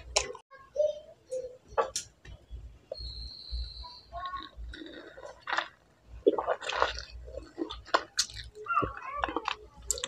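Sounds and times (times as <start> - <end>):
person chewing juicy fruit: 4.2 - 10.0.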